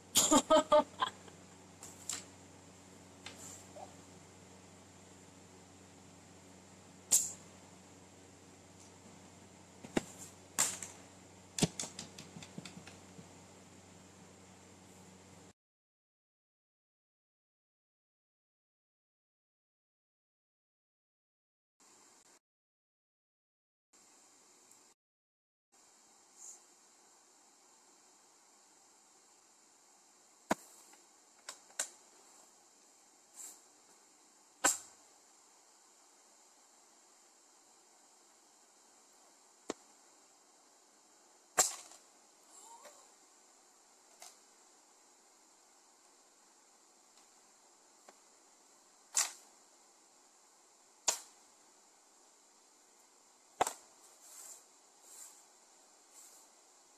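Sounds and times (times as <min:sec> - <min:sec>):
faint steady hiss: 0:00.0 - 0:15.6, 0:21.8 - 0:22.4, 0:24.0 - 0:25.0, 0:25.8 - 0:56.9
faint steady hum: 0:00.0 - 0:15.6, 0:21.8 - 0:22.4, 0:24.0 - 0:25.0, 0:25.8 - 0:56.9
short hissy rustles: 0:03.3 - 0:03.8, 0:33.3 - 0:33.7, 0:54.0 - 0:56.6
soft brushing sound: 0:54.0 - 0:56.6.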